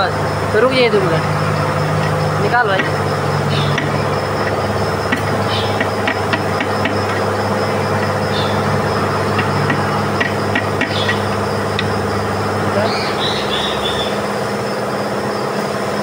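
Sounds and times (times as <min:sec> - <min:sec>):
engine idling hum: 0:00.0 - 0:16.0
hand tools tapping metal: 0:01.1 - 0:12.3.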